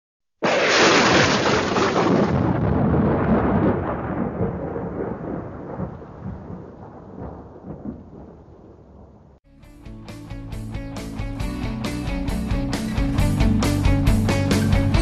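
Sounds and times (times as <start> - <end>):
deep thunder-like rumble: 0.4 - 9.4.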